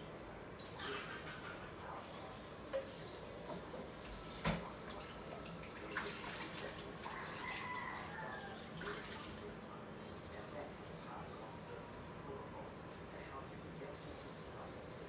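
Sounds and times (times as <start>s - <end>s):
water running in sink: 4.5s - 9.5s.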